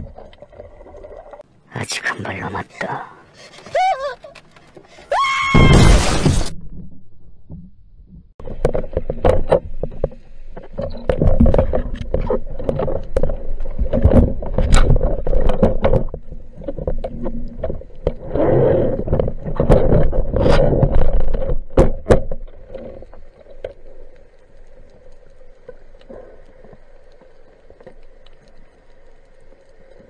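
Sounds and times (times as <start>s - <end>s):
dense crackling clicks: 6.7s - 30.0s.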